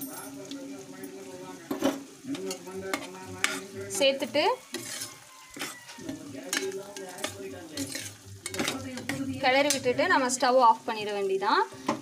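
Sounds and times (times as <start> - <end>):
oil sizzling: 0.0 - 12.0
ladle stirring thick pickle: 0.3 - 10.4
ladle scraping metal pot: 1.7 - 4.0, 4.6 - 10.0.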